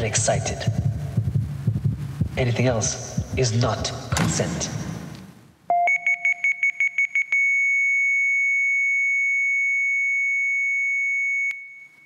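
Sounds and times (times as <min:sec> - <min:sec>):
high electronic beeps: 0:05.7 - 0:07.5.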